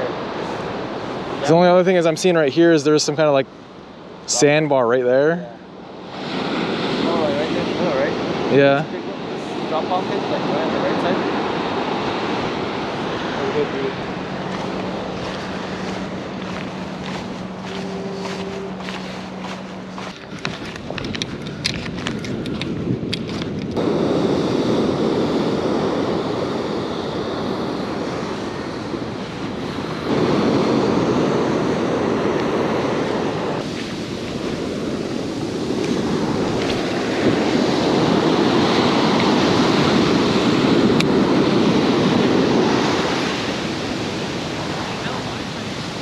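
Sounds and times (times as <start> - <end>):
wind on microphone: 5.8 - 46.0
surf breaking on beach: 5.9 - 22.8, 23.8 - 46.0.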